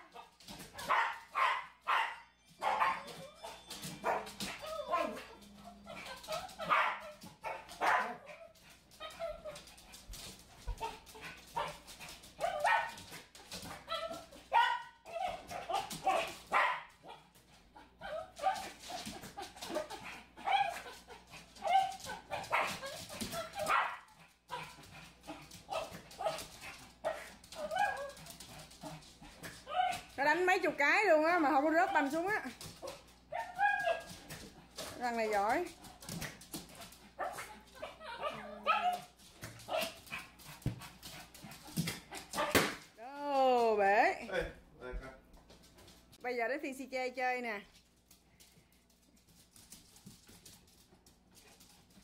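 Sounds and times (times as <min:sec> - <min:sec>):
small dog barking and yipping: 0:00.0 - 0:30.2, 0:31.8 - 0:35.0, 0:36.1 - 0:40.7, 0:41.5 - 0:42.8.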